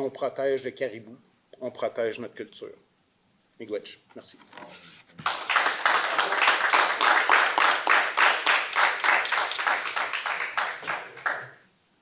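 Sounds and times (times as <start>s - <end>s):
audience applauding: 5.2s - 11.6s.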